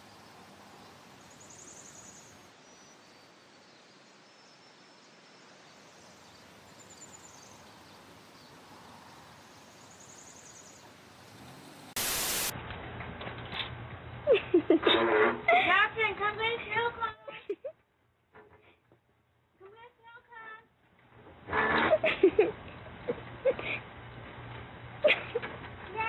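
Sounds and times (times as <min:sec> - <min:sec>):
loud burst of hiss: 0:11.8 - 0:12.5.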